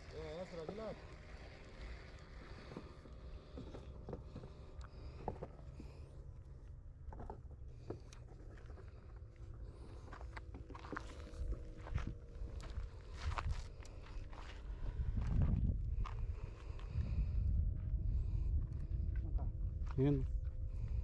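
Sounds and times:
wind rumble on microphone: 0:06.8 - 0:21.0.

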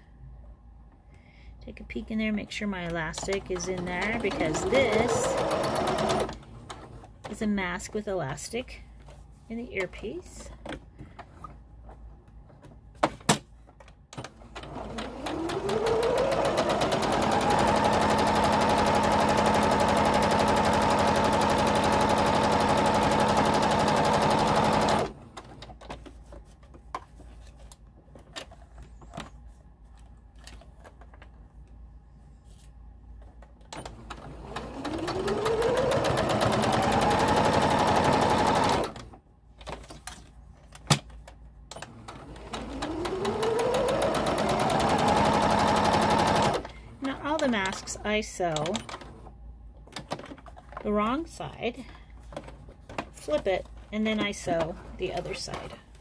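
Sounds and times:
sewing machine motor whine: 0:03.4 - 0:06.9, 0:14.5 - 0:25.2, 0:33.8 - 0:39.0, 0:41.8 - 0:46.7.

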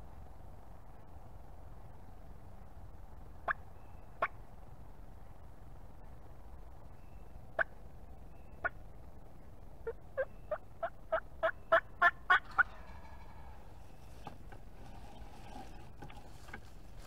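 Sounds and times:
turkey yelps: 0:09.8 - 0:13.6.

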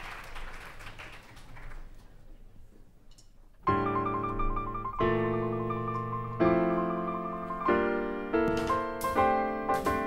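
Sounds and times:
slow piano chords: 0:03.6 - 0:10.0.

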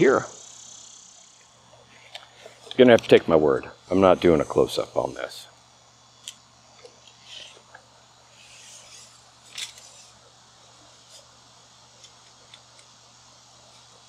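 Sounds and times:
tape measure rustle: 0:08.5 - 0:10.2.

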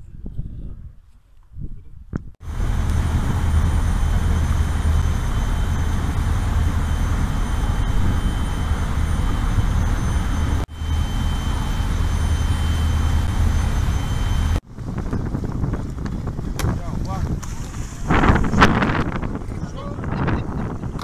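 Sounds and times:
wind on microphone: 0:00.0 - 0:21.0
faint high whine: 0:02.4 - 0:14.6
churning wake water: 0:02.4 - 0:20.6
motor boat engine rumble: 0:02.4 - 0:21.0.

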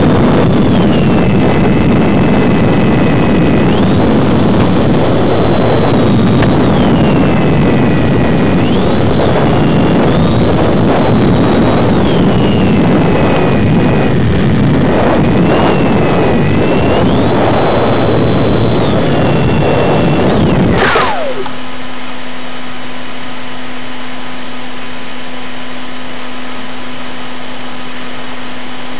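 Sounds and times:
wind noise: 0:00.0 - 0:22.1
model airplane motor whine: 0:00.0 - 0:28.9.

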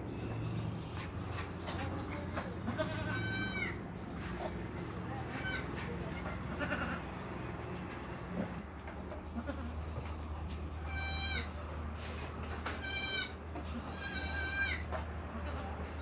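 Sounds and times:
goat kid bleating: 0:01.8 - 0:03.8, 0:05.2 - 0:07.2, 0:09.1 - 0:11.6, 0:12.8 - 0:16.0.

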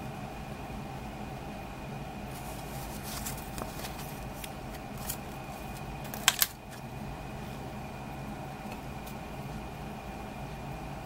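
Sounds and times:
paper inlay rustling: 0:02.3 - 0:06.9
sharp plastic clicks of cd case: 0:03.2 - 0:06.9.

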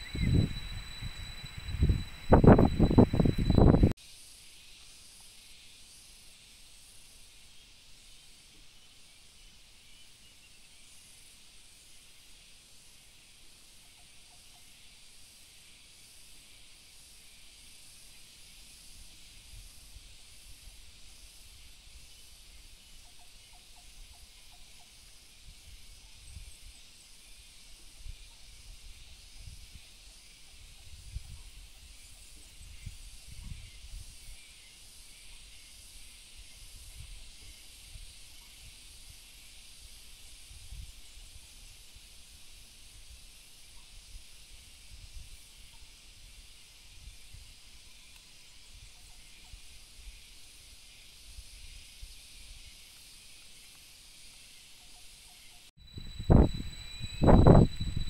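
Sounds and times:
faint short chirps: 0:00.0 - 0:03.9, 0:55.8 - 0:58.0
wind rumbling on microphone: 0:00.0 - 0:04.0, 0:30.6 - 0:32.0, 0:32.6 - 0:34.2, 0:55.8 - 0:58.0
high-pitched insect chorus: 0:00.0 - 0:08.4, 0:10.8 - 0:58.0.

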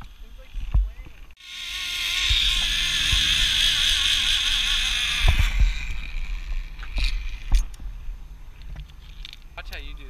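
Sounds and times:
zipline pulleys whirring on cable: 0:00.0 - 0:08.0.

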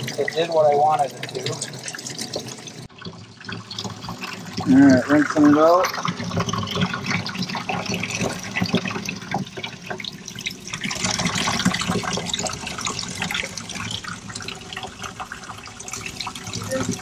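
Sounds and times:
running water splashing: 0:00.0 - 0:17.0.

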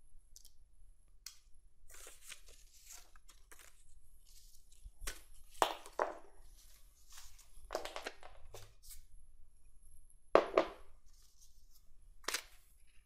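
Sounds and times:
paper rustling and tapping: 0:07.2 - 0:08.7.

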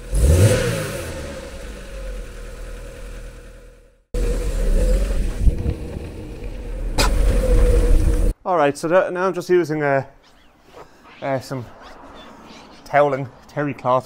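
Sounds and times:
car engine idling: 0:01.3 - 0:08.3.

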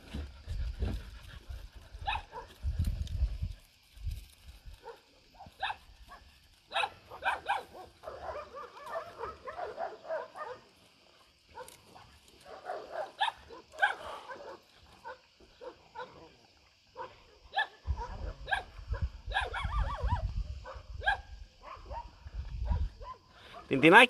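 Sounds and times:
dogs barking and yelping: 0:00.1 - 0:02.6, 0:04.7 - 0:10.8, 0:11.5 - 0:16.3, 0:16.9 - 0:23.7.

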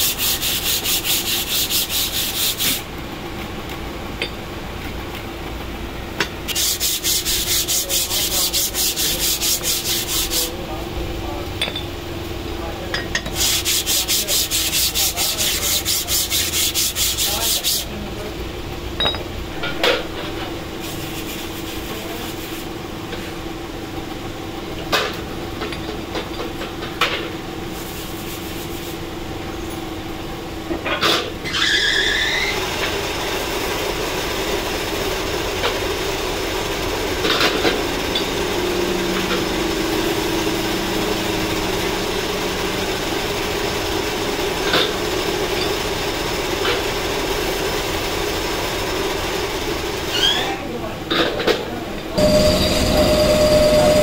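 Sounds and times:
rag scrubbing metal parts: 0:00.0 - 0:02.9, 0:06.5 - 0:10.5, 0:12.9 - 0:17.9, 0:19.0 - 0:22.6
machine hum: 0:18.2 - 0:22.2, 0:52.2 - 0:54.0
metal knocks: 0:19.0 - 0:20.1
short squeal: 0:31.4 - 0:32.6, 0:50.1 - 0:50.6, 0:52.2 - 0:54.0.

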